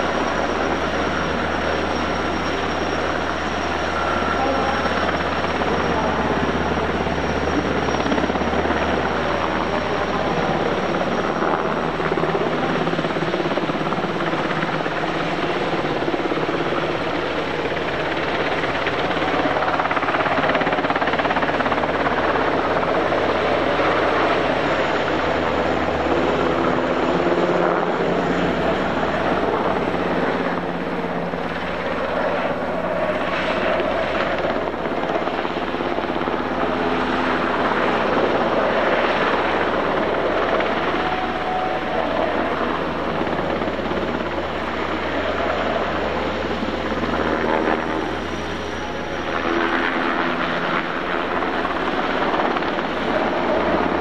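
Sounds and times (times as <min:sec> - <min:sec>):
helicopter engines and rotor: 0:00.0 - 0:54.0.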